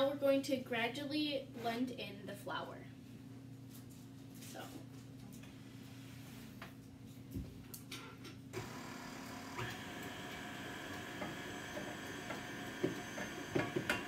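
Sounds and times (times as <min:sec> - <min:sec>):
stand mixer motor whine: 0:08.6 - 0:14.0.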